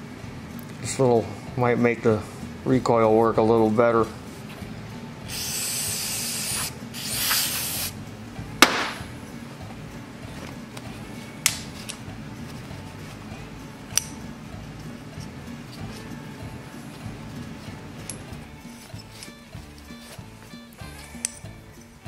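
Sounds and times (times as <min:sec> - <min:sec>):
aerosol spray hissing: 0:05.3 - 0:08.0
sharp knock: 0:08.6 - 0:09.1.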